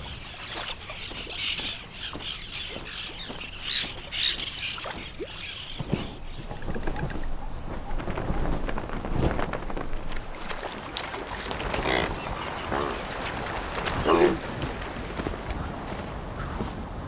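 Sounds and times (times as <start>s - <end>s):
birds chattering: 0.0s - 14.5s
low thumps: 5.6s - 10.6s
steady high whine: 5.8s - 10.8s.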